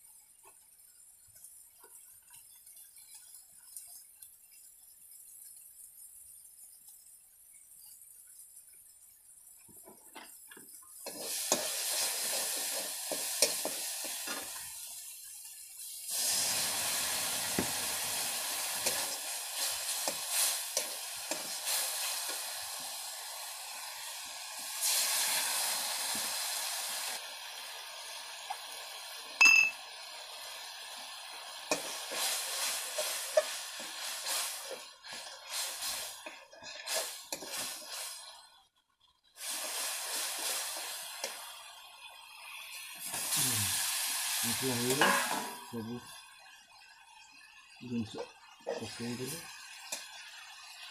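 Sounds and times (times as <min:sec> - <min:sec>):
food sizzling in hot oil: 0:00.0 - 0:50.9
steel utensils clinking: 0:29.4 - 0:29.8.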